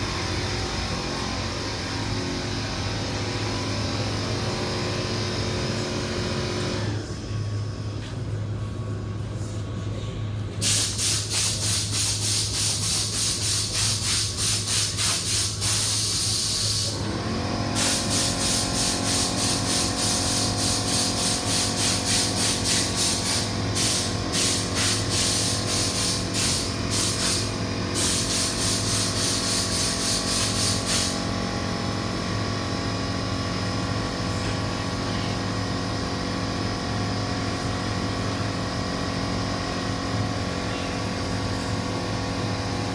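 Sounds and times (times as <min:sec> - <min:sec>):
steady low hum: 0:00.0 - 0:42.9
paint spray gun hissing: 0:10.6 - 0:17.0, 0:17.8 - 0:31.4.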